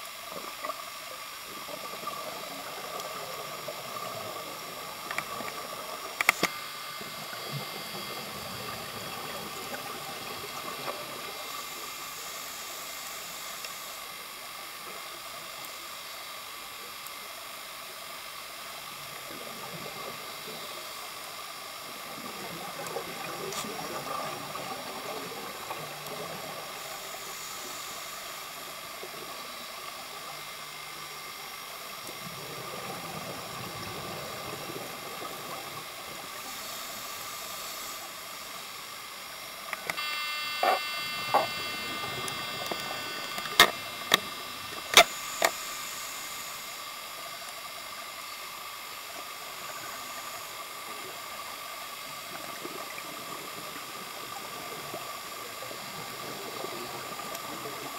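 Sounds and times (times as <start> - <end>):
underwater hiss: 0.0 - 40.0, 40.6 - 57.9
thin high whine: 0.0 - 57.9
exhaled bubbles underwater: 0.2 - 12.6, 18.8 - 39.9, 48.9 - 57.9.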